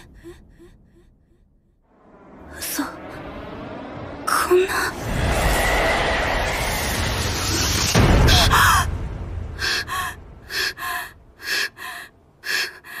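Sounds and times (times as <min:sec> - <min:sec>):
girl panting: 0:09.6 - 0:13.0.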